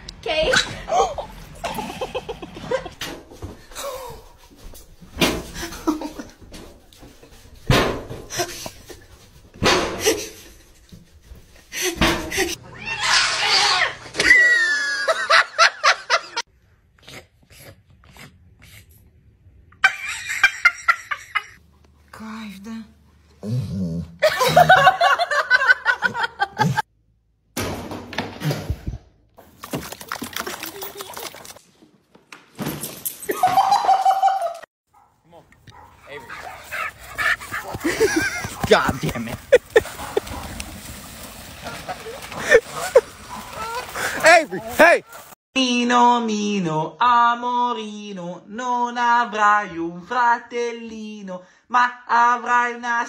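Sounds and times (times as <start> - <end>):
background noise: 0.0 - 53.0
person laughing hard: 0.9 - 3.0, 14.3 - 16.4, 24.2 - 26.8, 33.3 - 34.6, 37.6 - 40.4, 41.9 - 44.6
small dog barking: 34.9 - 36.7.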